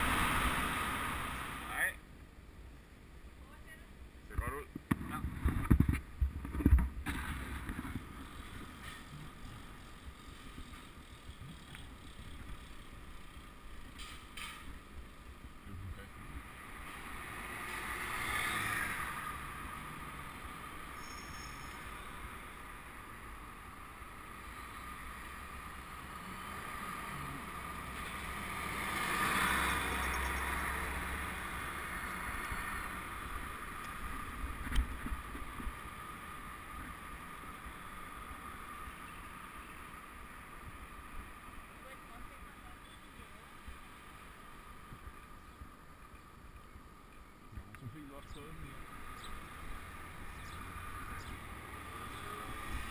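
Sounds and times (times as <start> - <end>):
wind: 0.0 - 52.9
bicycle tyre rumble: 5.0 - 42.4.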